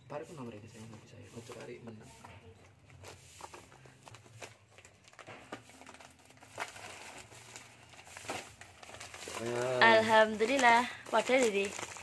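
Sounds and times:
plastic wrapper crinkling: 2.7s - 12.0s.

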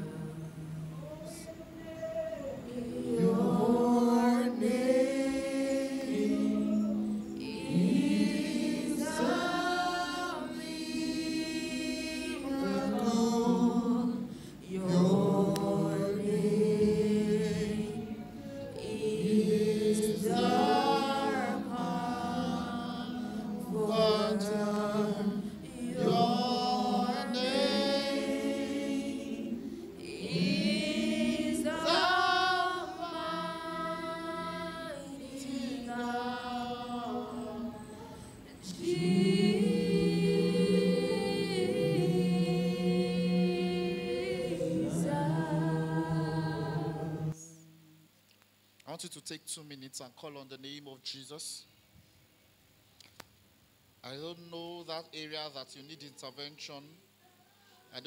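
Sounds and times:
group singing gospel song: 0.0s - 47.7s.

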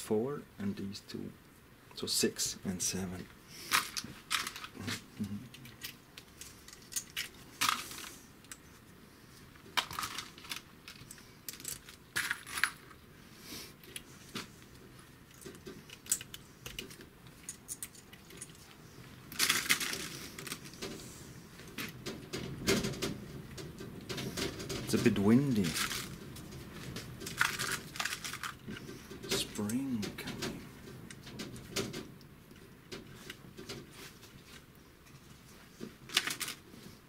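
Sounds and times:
light clicks and rattles: 13.8s - 37.0s.

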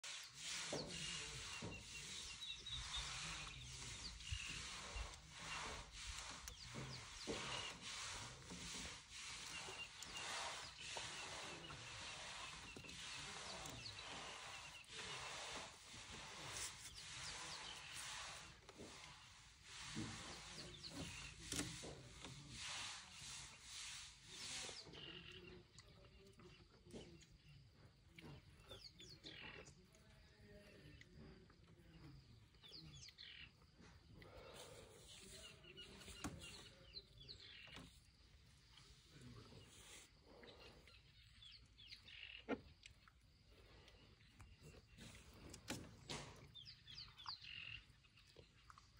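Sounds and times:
leaves rustling: 0.0s - 24.8s.

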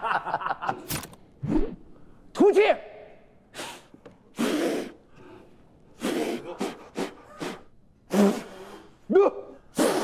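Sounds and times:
man blowing hard huffs: 3.5s - 9.0s, 9.7s - 10.0s.

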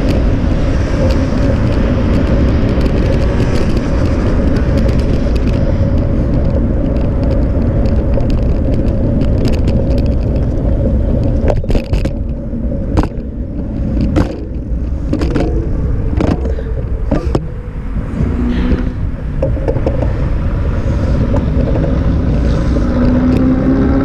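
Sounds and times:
wind and road rumble: 0.0s - 24.0s.

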